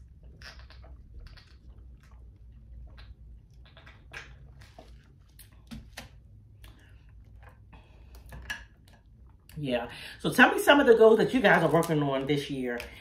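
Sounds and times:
sipping and swallowing: 0.0 - 5.6
low steady hum: 0.0 - 13.0.

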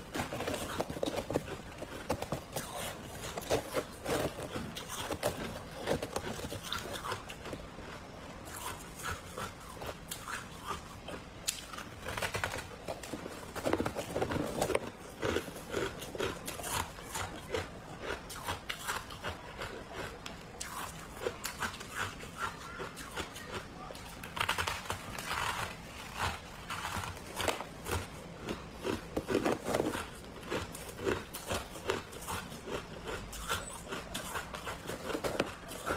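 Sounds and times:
frost being chewed crunching: 0.0 - 35.9.

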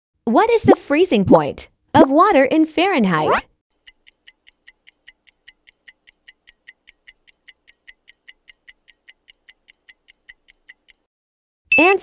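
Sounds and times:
countdown timer ticking: 3.8 - 11.1.

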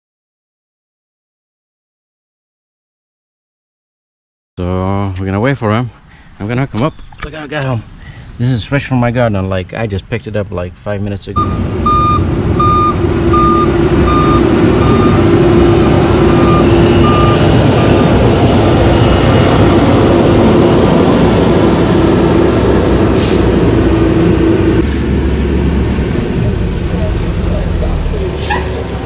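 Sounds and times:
reversing alarm beeping: 11.4 - 20.8
garbage truck engine hum: 11.4 - 29.0
air brakes hiss: 23.2 - 23.6.

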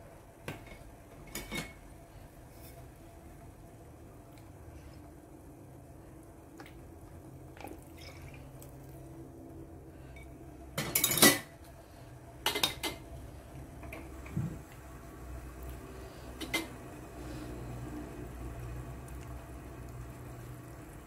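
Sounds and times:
utensils clattering on a metal pot: 0.6 - 1.8, 10.2 - 11.5, 12.4 - 13.0, 16.4 - 16.7.

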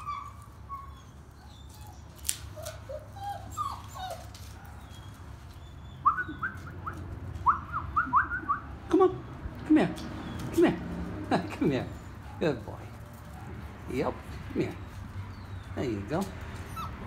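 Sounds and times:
puppies whining: 0.0 - 8.8, 10.0 - 10.8, 14.6 - 17.0.

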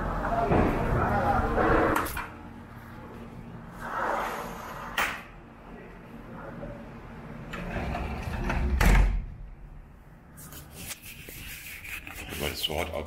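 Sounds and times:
sliding door rolling on track: 7.5 - 9.2
door thudding shut: 8.6 - 9.4.

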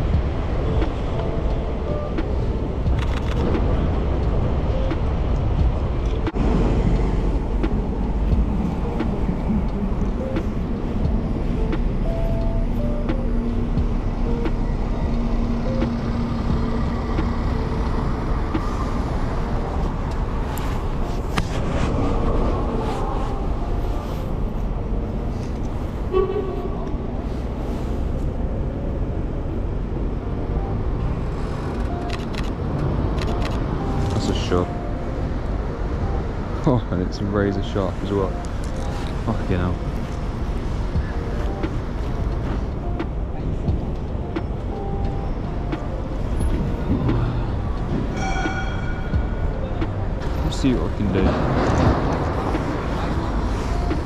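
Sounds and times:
low traffic rumble: 0.0 - 54.0
vehicle horn toot: 26.1 - 26.8
scattered clicks and knocks: 40.9 - 53.2.

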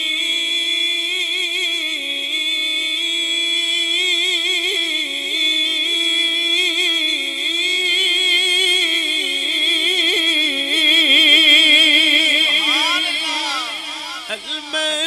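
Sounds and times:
man singing unaccompanied: 10.5 - 15.0.

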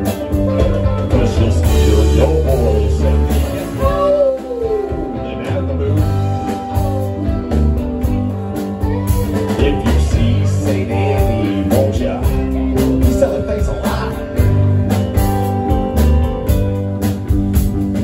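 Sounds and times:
drum kit: 0.0 - 18.0
electric bass: 0.0 - 18.0
electric guitar: 0.0 - 18.0
keyboards: 0.0 - 18.0
person singing: 0.6 - 7.4, 8.7 - 14.6.

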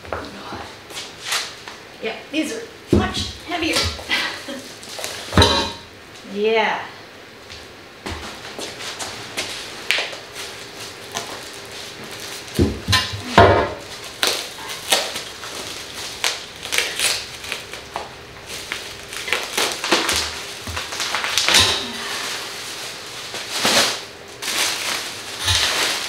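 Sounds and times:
plastic wrap rustling and crinkling: 3.3 - 5.4, 8.2 - 26.0.

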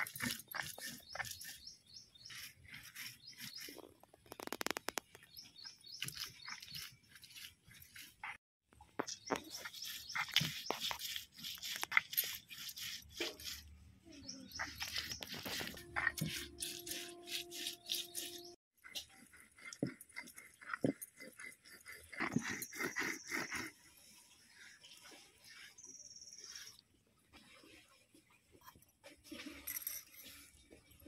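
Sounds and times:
stone grinding and crunching: 0.0 - 8.4, 9.0 - 13.7, 14.5 - 23.7.

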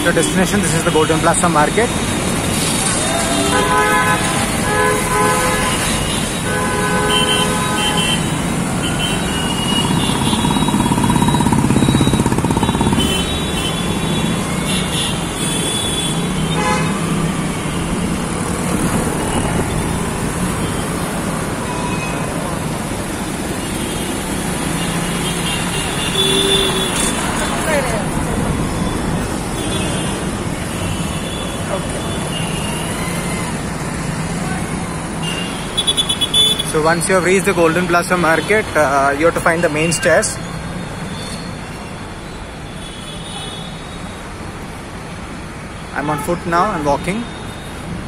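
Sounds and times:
traffic engines running: 0.0 - 48.0
vehicle horns tooting: 3.3 - 17.2, 23.7 - 27.6, 29.5 - 33.3, 35.2 - 36.8.

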